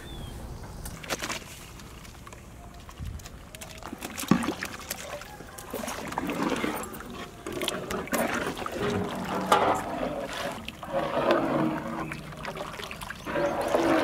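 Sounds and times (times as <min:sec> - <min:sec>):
curry sloshing in metal pot: 0:04.0 - 0:14.0
spatula scraping metal pot: 0:06.3 - 0:12.6, 0:13.2 - 0:14.0.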